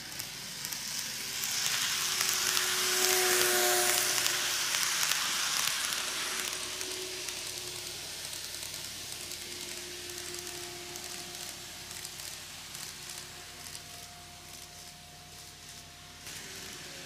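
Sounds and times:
faint motor whine: 0.0 - 17.0
model train wheels hissing: 0.0 - 17.0.

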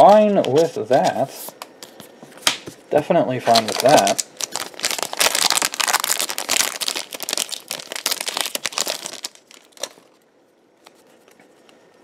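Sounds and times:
foil pack tearing and crinkling: 3.4 - 10.2.

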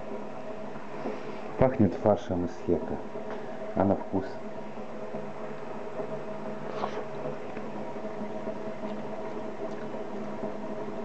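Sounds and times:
steady mechanical hum: 0.0 - 11.0.

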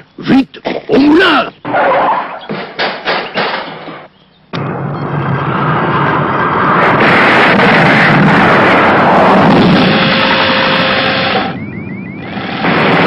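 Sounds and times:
cartoon spaceship rushing roar: 5.4 - 13.0.

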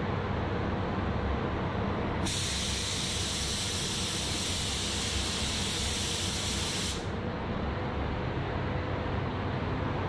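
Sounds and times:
paint spray gun hissing: 2.3 - 7.1.

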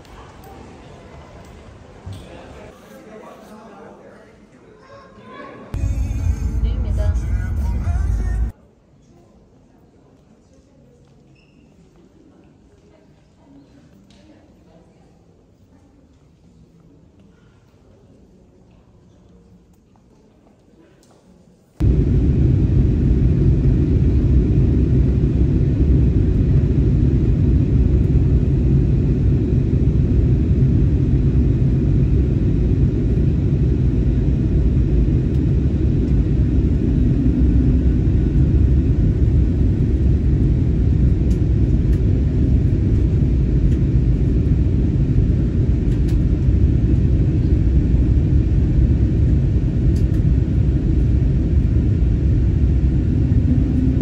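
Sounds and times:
airliner cabin engine rumble: 5.8 - 8.5, 21.8 - 54.0.

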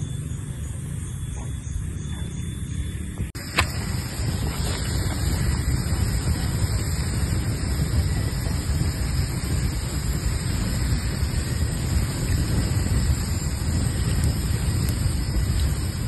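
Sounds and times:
wind buffeting microphone: 0.0 - 16.0
faint fire crackles: 3.2 - 16.0.

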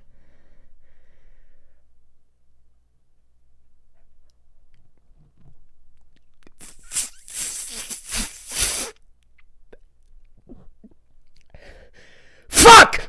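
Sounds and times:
breath puffs on microphone: 6.6 - 9.0.

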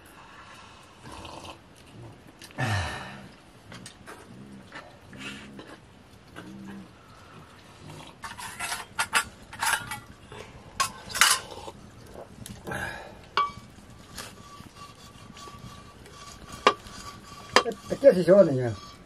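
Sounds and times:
metal ladle scraping steel pot: 8.2 - 12.6, 13.3 - 19.0.

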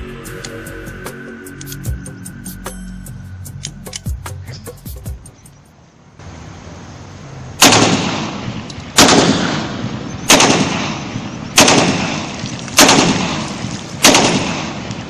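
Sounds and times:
pistol shots with echo: 7.6 - 15.0.

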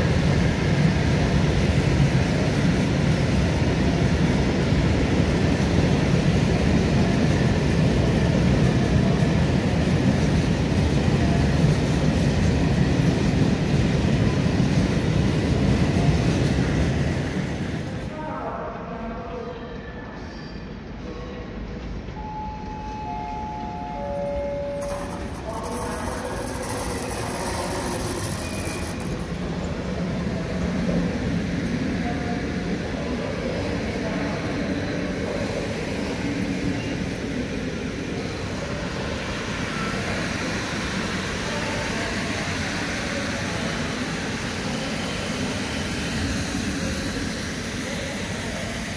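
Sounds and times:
train wheels rumbling on rails: 0.0 - 18.2, 20.9 - 48.9.

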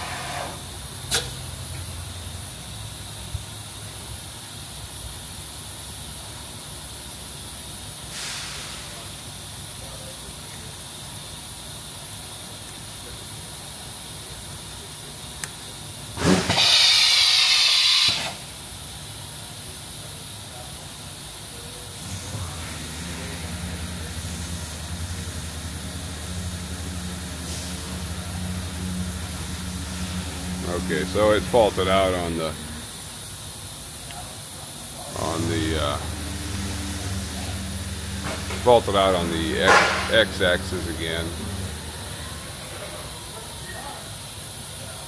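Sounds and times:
faint hiss: 7.9 - 45.0
burst of hissing air: 8.1 - 9.1, 16.2 - 18.5, 25.8 - 30.6.

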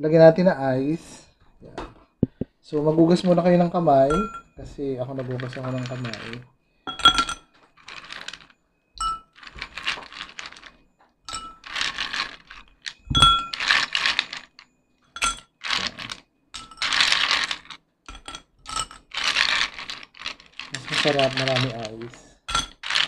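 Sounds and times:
ice clinking in glass: 4.1 - 4.5, 5.4 - 7.5, 9.0 - 10.6, 11.3 - 11.8, 13.0 - 14.4
ice rattling and scraping: 5.2 - 6.4, 7.8 - 8.5, 9.4 - 14.6, 15.6 - 16.2, 16.8 - 17.8, 19.0 - 22.2, 22.8 - 23.0.

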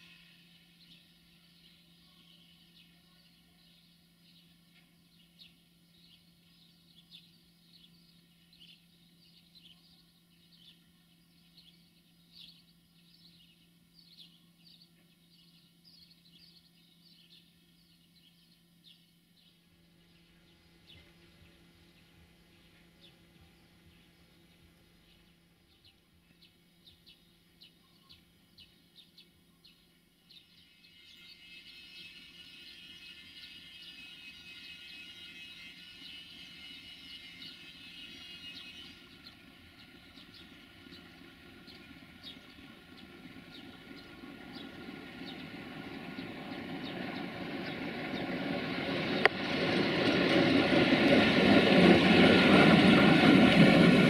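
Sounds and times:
diesel locomotive approaching: 0.0 - 9.7, 29.9 - 54.0
faint bird chirps: 0.0 - 36.3.

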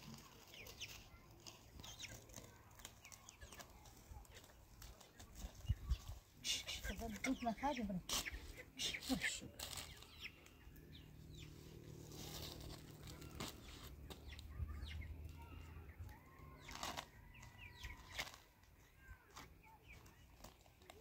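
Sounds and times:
flatbread rustling and crackling: 0.0 - 5.6, 9.0 - 10.5, 12.0 - 14.5
chickens clucking: 0.0 - 21.0.

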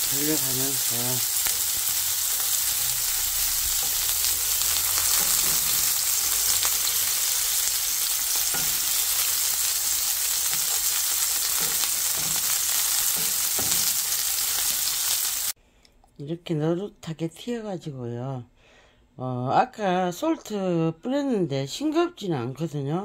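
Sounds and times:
pork sizzling in a frying pan: 0.0 - 15.6.

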